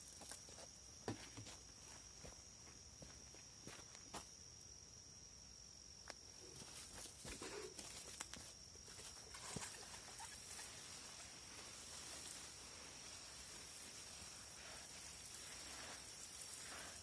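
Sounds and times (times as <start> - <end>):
water spray pattering on leaves: 8.2 - 17.0.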